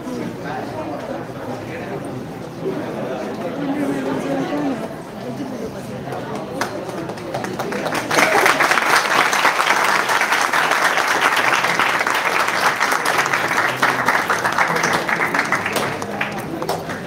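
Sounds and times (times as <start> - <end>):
audience applauding: 6.1 - 17.0.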